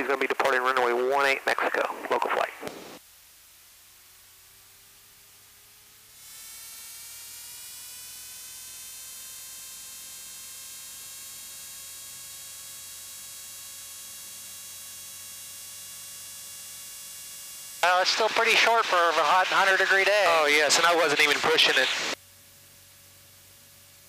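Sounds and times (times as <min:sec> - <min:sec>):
aircraft engine buzzing hum: 0:17.5 - 0:22.2.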